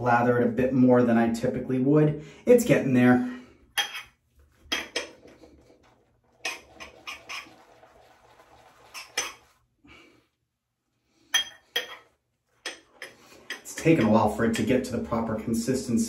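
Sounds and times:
brush clacking against container: 3.8s - 9.6s, 11.4s - 15.0s
wet frothy swishing of lather: 4.2s - 10.4s.

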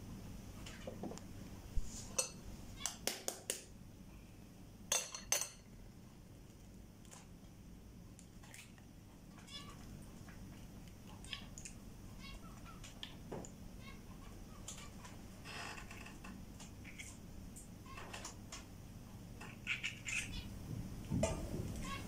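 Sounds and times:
eggs and bowls clicking on counter: 2.2s - 3.7s
bird chirping: 19.4s - 20.5s.

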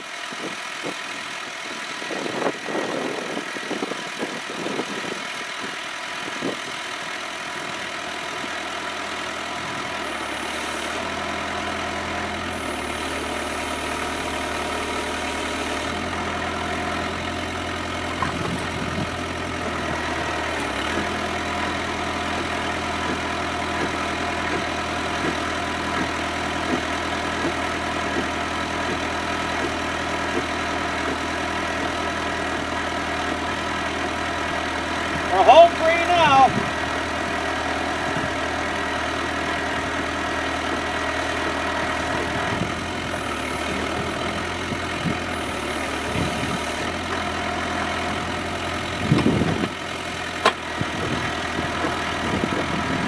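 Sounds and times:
tractor diesel engine running: 0.0s - 53.0s
auger digging into ground: 14.8s - 34.0s.

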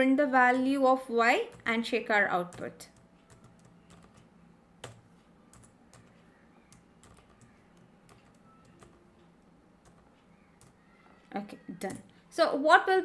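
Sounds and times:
typing on computer keyboard: 1.4s - 1.8s, 2.4s - 9.1s.

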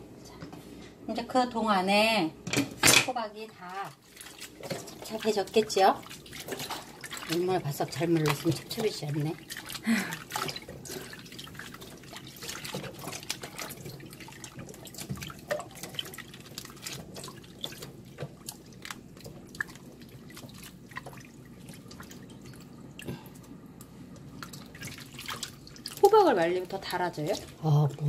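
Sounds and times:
small splashes and drips: 3.6s - 28.0s
hands swishing in water: 4.0s - 22.7s.

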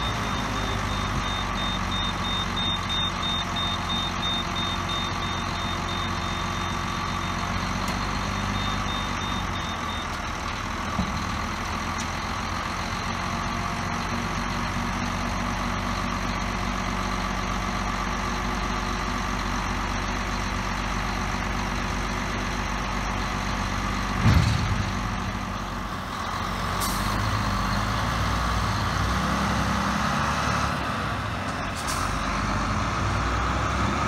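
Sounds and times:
diesel truck engine running: 0.0s - 34.0s
loud bang of tipper body: 24.2s - 25.2s.

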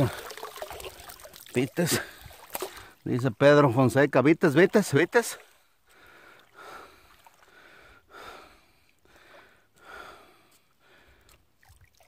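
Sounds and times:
man breathing heavily: 5.8s - 11.4s.

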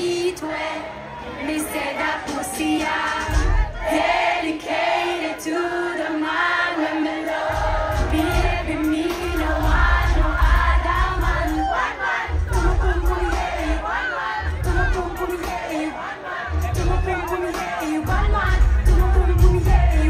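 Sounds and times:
crowd singing along: 0.0s - 20.0s
live dancehall music over pa: 0.0s - 20.0s
heavy bass line: 7.5s - 15.7s, 16.5s - 20.0s.

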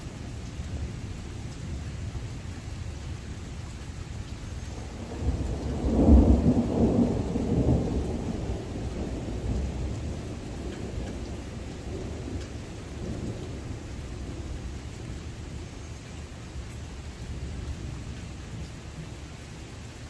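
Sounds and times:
steady rain: 0.0s - 20.0s
thunder rolling: 4.7s - 14.4s.

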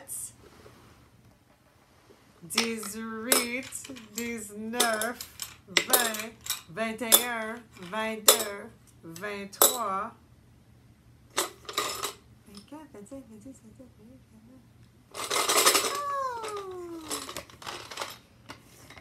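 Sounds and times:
buttons clinking into plastic jar: 2.6s - 8.5s.

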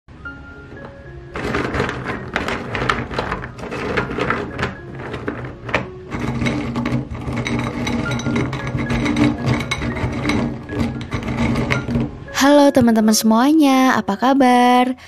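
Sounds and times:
candies rattling in a glass bowl: 1.3s - 12.1s.

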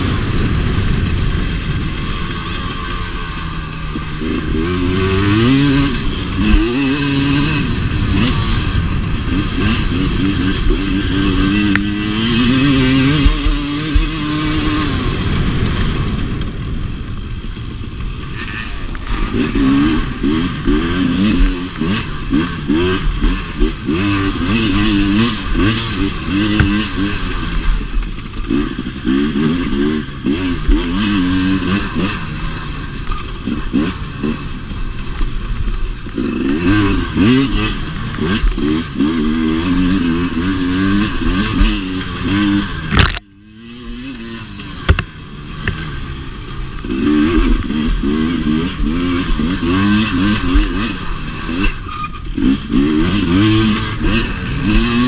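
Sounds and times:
dirt bike engine revving: 0.0s - 55.0s
bike knocks and rattles: 25.6s - 29.3s, 44.8s - 45.9s.

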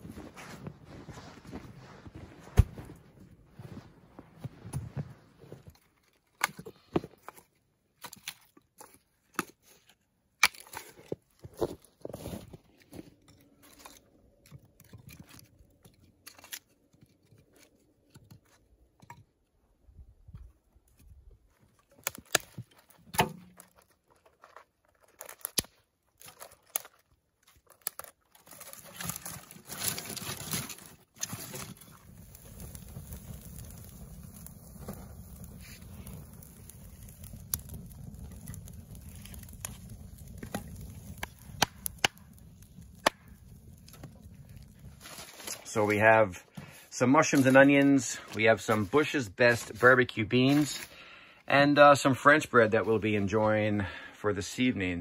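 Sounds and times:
dry twigs crunching and rustling: 0.0s - 19.0s, 20.7s - 51.0s.

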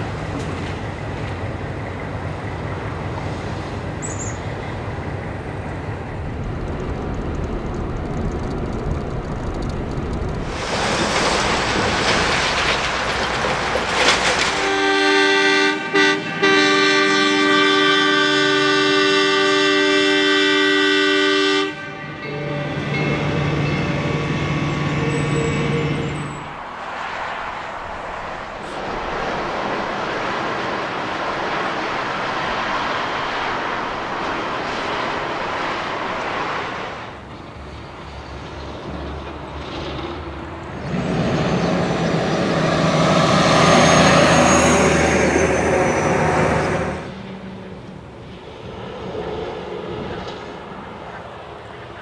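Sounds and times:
passing train rumble: 0.0s - 52.0s
traffic: 0.0s - 52.0s
locomotive horn blasts: 14.5s - 26.3s.

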